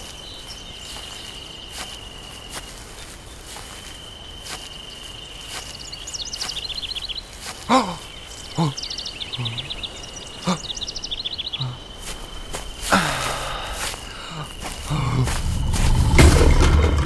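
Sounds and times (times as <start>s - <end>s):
high insect tone: 0.0s - 17.0s
bird trills: 4.5s - 12.1s
man grunting: 7.7s - 8.8s, 9.4s - 9.7s, 10.4s - 10.6s, 11.6s - 11.8s, 12.9s - 15.4s.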